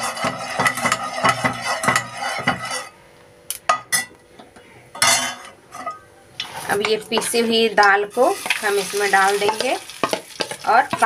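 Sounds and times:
spoon scraping a pan: 0.0 - 3.0, 5.0 - 11.0
spoon tapping a pan: 0.2 - 2.7, 9.4 - 11.0.

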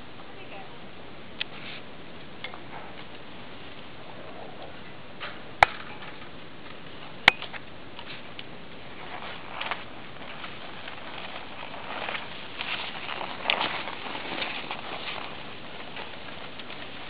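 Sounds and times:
skis and poles tapping on snow: 4.6 - 17.0
sharp cracks: 5.2 - 6.2.

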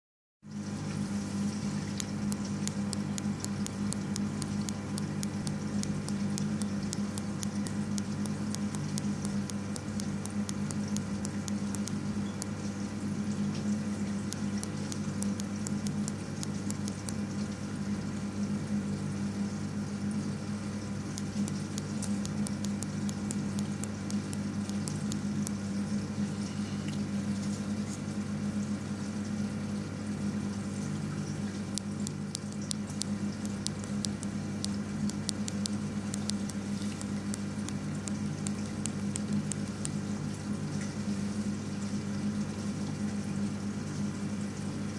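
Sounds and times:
water trickling and bubbling: 0.5 - 18.7
aquarium pump hum: 0.5 - 44.9
quick light ticks: 1.9 - 12.7, 13.6 - 17.6, 21.2 - 25.7, 31.5 - 40.0.

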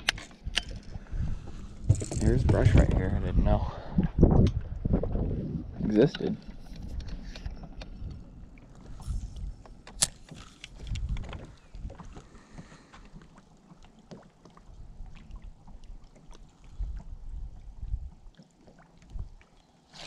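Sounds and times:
wind gusting on microphone: 0.0 - 6.1, 10.8 - 12.2
water lapping against boat hull: 0.0 - 20.0.

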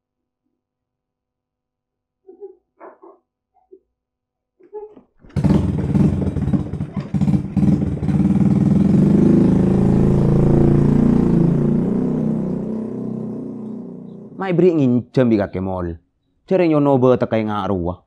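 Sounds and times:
motorcycle engine starting and revving: 5.2 - 14.5.

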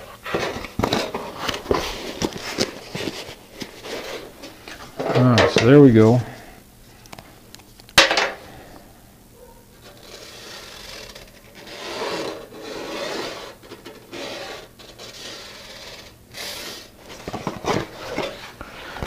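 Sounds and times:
card rubbing on sheet metal: 9.8 - 19.0.

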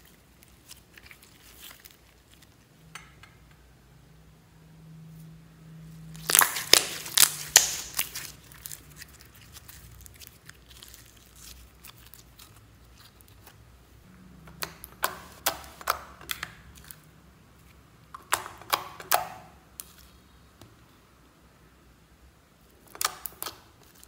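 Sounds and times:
slime squished with wet clicks: 22.9 - 24.0.

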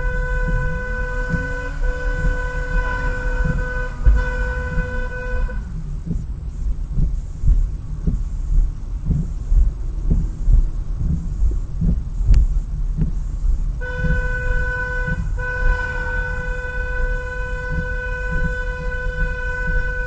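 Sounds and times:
car horn blaring: 0.0 - 5.8, 13.8 - 20.0
car driving rumble: 0.0 - 20.0.

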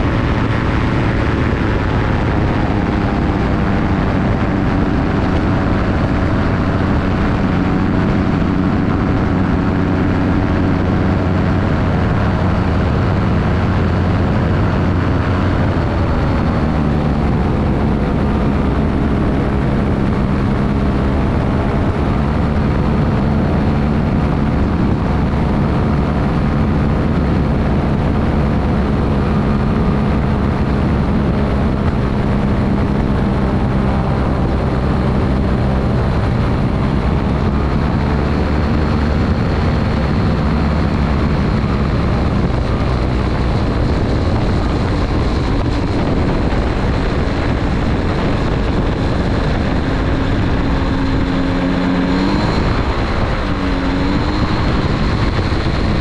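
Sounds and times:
aircraft engine and propeller: 0.0 - 56.0
wind rushing: 0.0 - 56.0.

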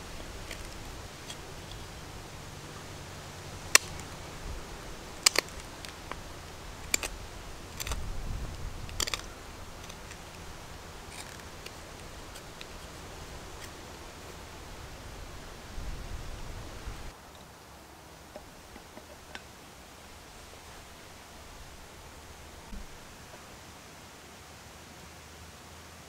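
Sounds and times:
knife scraping wood: 0.0 - 15.0
knife clicking through wood: 3.7 - 4.2, 5.2 - 13.8.

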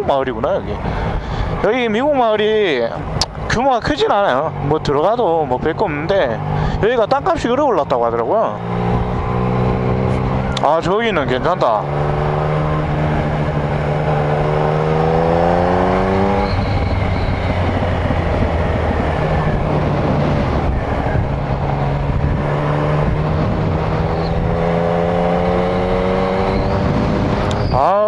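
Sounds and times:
motorcycle engine accelerating: 2.6 - 28.0
wind noise on microphone: 11.8 - 28.0.

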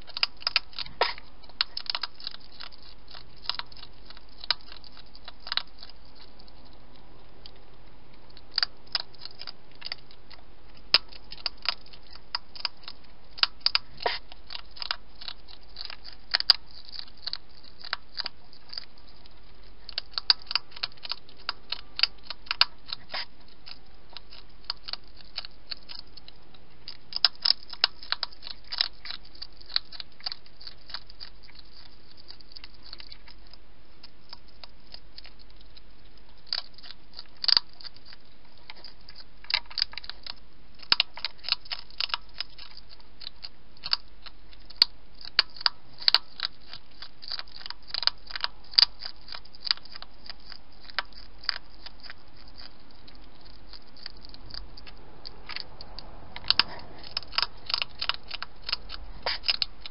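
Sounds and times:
hedgehog crunching and chewing: 0.0 - 59.9.

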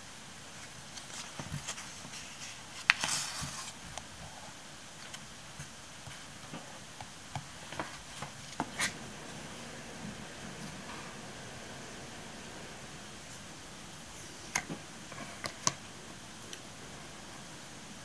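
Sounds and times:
paper rustling: 0.9 - 3.9.

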